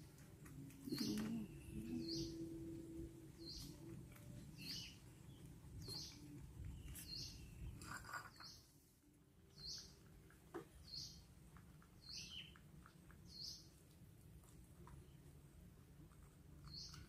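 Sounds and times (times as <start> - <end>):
low background hum: 0.0 - 17.0
high bird chirps: 4.6 - 8.7.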